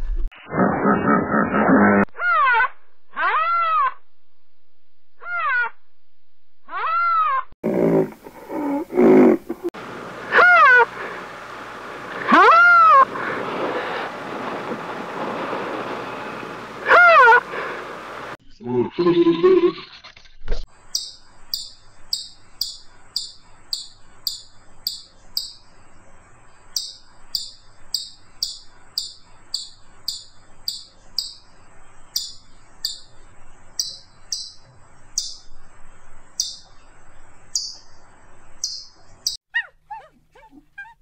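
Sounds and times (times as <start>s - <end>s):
ground squirrel chirping: 20.8s - 25.8s, 26.6s - 35.6s, 36.3s - 36.8s, 37.5s - 37.9s, 38.6s - 40.1s.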